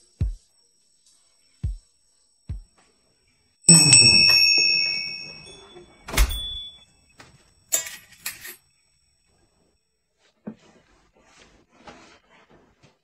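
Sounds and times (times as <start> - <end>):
door opening clatter with ringing: 3.7 - 6.8
door shutting thunk: 6.1 - 6.6.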